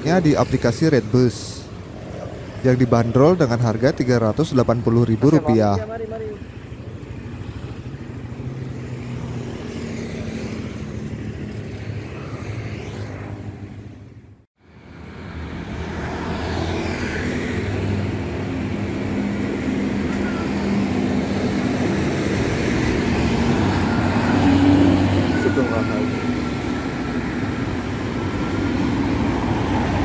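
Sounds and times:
road traffic hum: 0:00.0 - 0:30.0.

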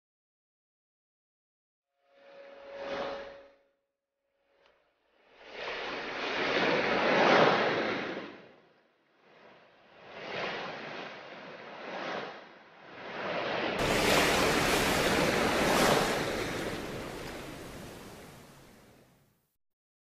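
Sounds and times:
ocean waves washing in: 0:05.2 - 0:19.2.

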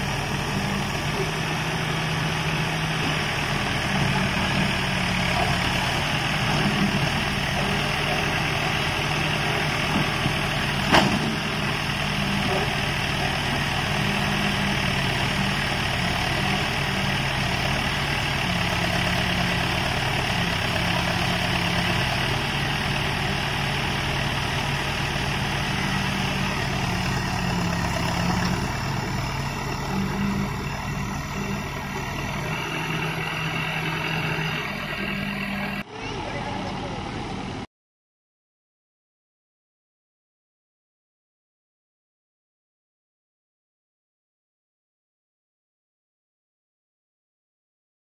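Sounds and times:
backhoe loader diesel engine running: 0:00.0 - 0:37.7.

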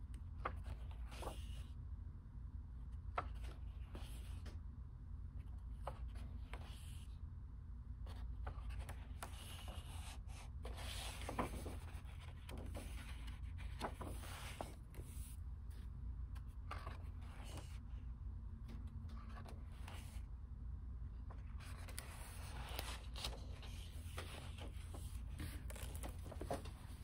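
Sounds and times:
steady low hum: 0:00.0 - 0:27.0
book pages turning: 0:00.4 - 0:01.6, 0:08.1 - 0:17.8, 0:18.7 - 0:20.2, 0:21.2 - 0:27.0.

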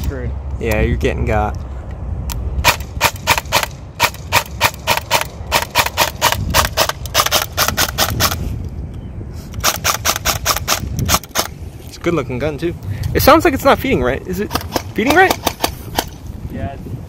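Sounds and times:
airsoft gun firing: 0:02.6 - 0:08.4, 0:14.5 - 0:16.2.

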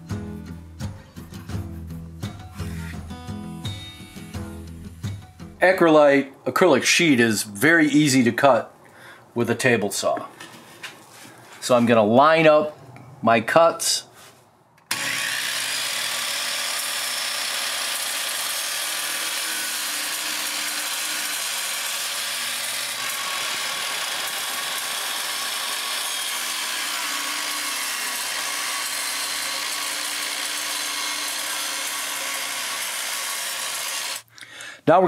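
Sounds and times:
electric saw cutting acrylic: 0:14.9 - 0:34.3.

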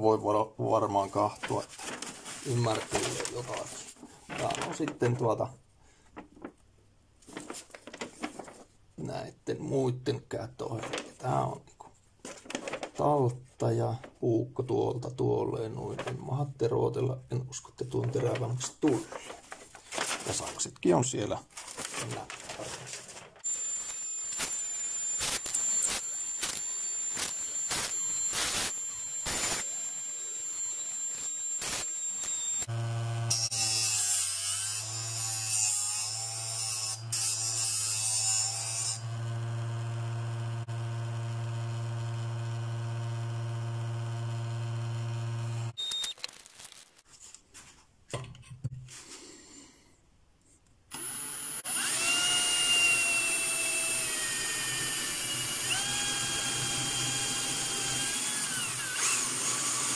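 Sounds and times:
drill whining into metal: 0:23.4 - 0:35.3, 0:36.0 - 0:46.8, 0:50.9 - 0:59.9
grinding hiss: 0:23.5 - 0:32.7
electric motor humming: 0:23.5 - 0:33.7, 0:39.0 - 0:45.8.

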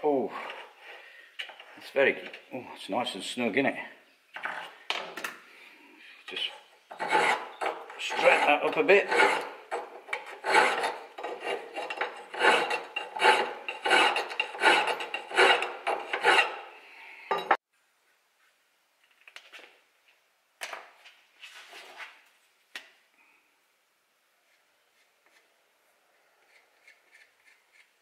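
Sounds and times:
file rasping on metal: 0:06.9 - 0:16.7.

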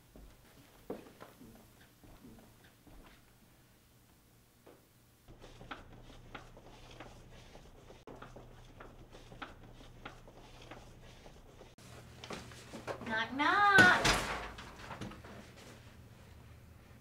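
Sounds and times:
footsteps on hard floor: 0:00.0 - 0:03.2.

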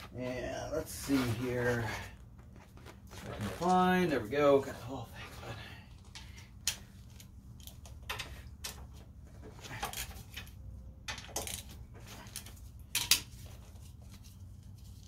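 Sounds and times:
wrench clinking and scraping on bolts: 0:09.6 - 0:13.6.

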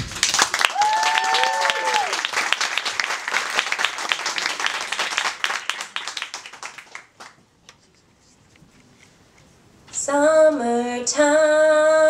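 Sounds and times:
small audience applauding: 0:00.0 - 0:07.4.

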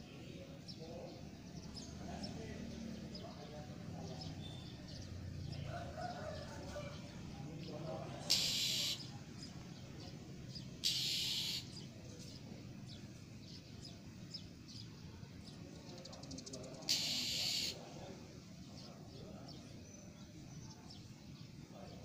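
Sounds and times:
bird harsh rasping calls: 0:08.1 - 0:09.2, 0:10.8 - 0:11.9, 0:16.3 - 0:17.8
faint bird chirps: 0:08.2 - 0:18.1, 0:18.7 - 0:22.0.

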